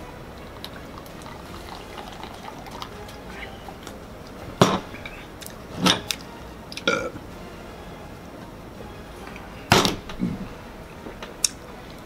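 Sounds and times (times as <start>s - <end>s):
drinking from plastic bottle: 0.4s - 7.1s.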